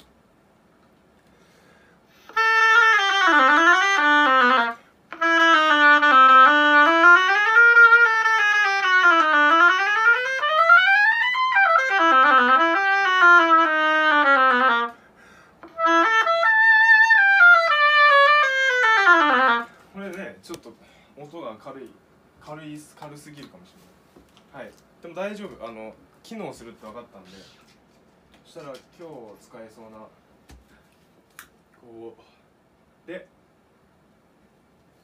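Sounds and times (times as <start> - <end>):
oboe playing quick runs: 2.2 - 15.0, 15.6 - 20.0.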